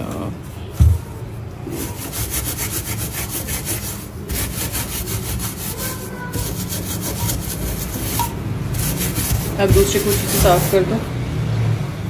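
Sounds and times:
steel wool scrubbing metal: 1.7 - 11.1.

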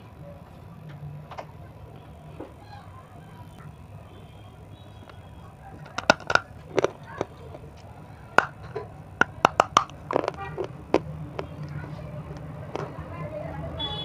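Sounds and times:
hard candy crunching: 3.6 - 13.1.

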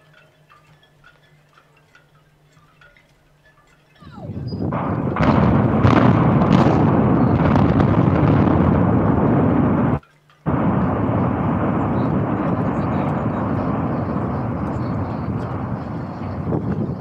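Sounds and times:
deep thunder-like rumble: 4.3 - 17.0
sharp explosion blast: 4.7 - 17.0.

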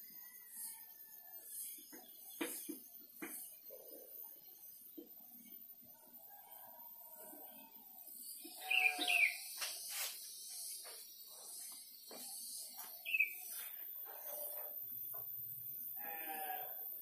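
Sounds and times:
faint insect hiss: 2.5 - 17.0
bird chirping: 7.6 - 16.6.

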